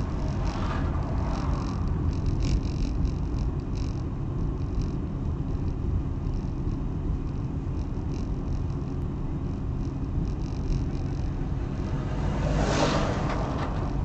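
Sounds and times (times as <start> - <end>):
car engine rumble: 0.0 - 14.0
tyres on the road: 0.0 - 14.0.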